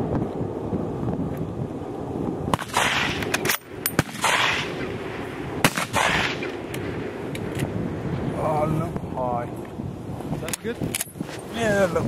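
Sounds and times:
sharp gunshot cracks: 2.5s - 5.0s, 5.6s - 6.9s
rifle shots echoing: 2.5s - 7.0s.

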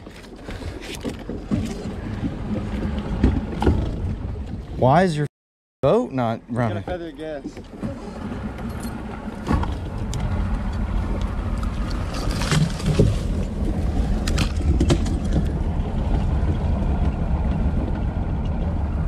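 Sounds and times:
outboard motor running: 0.0s - 4.8s, 6.5s - 19.0s
branches rustling and snapping: 11.6s - 15.6s.

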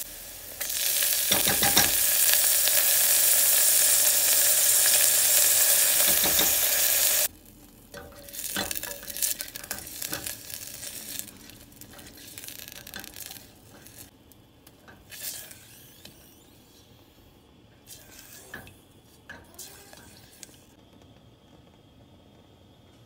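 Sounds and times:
spatula scraping a steel pot: 8.0s - 14.1s, 17.9s - 18.7s.

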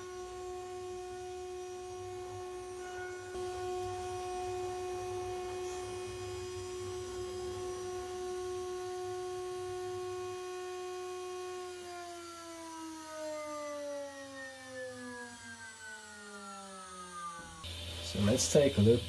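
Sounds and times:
router spindle whining: 0.0s - 13.9s.

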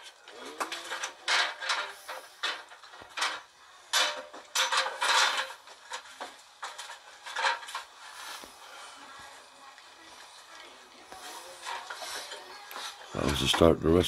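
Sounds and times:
tools and metal clattering: 0.0s - 8.2s, 11.1s - 14.0s.

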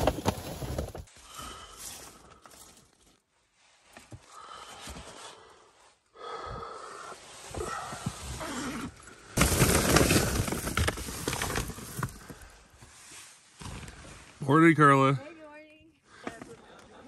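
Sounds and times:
tent zipper opening: 8.2s - 11.4s.

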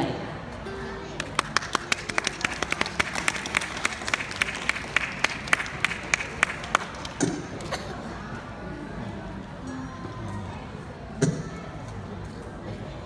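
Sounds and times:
audience applause: 1.2s - 7.2s.

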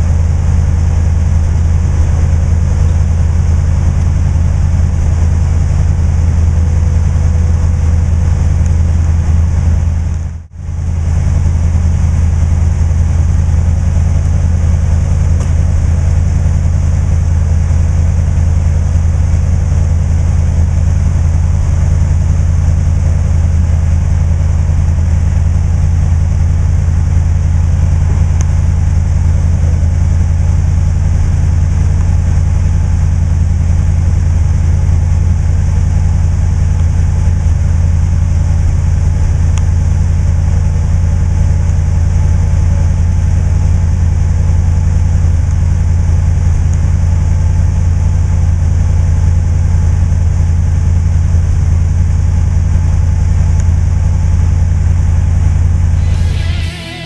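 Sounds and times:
low mechanical hum: 0.0s - 42.4s, 55.4s - 57.0s.

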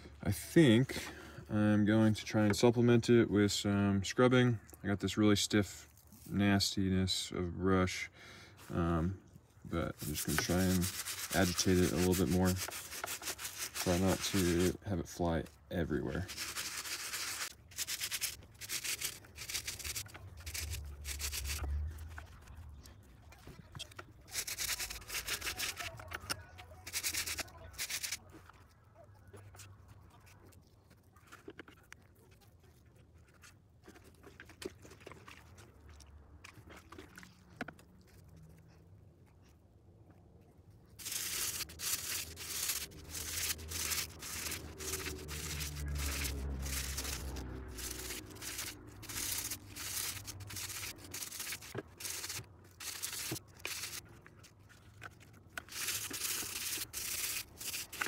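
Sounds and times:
brush scrubbing wet webbing: 9.7s - 38.8s, 40.9s - 58.0s.

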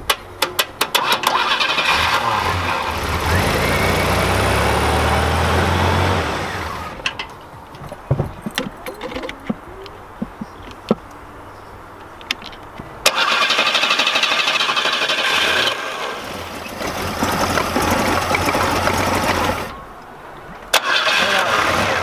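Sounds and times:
sharp clicks and knocks: 0.0s - 1.4s, 7.0s - 11.2s, 12.0s - 13.2s
engine cranking by starter: 0.6s - 7.4s, 13.0s - 19.8s, 20.7s - 22.0s.

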